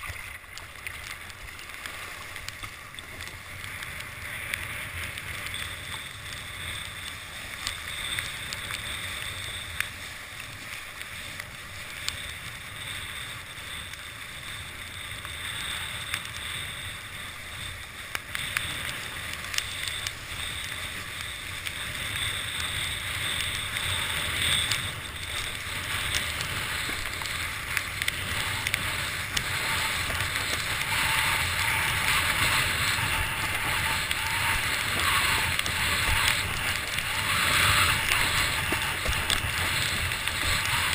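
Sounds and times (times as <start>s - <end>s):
rush of water and spray: 0.0s - 40.9s
wind on microphone: 11.3s - 40.9s.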